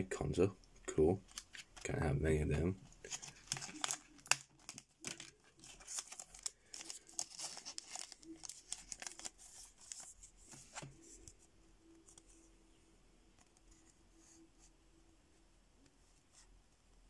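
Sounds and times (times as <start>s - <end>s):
plastic bag crinkling: 3.0s - 10.1s.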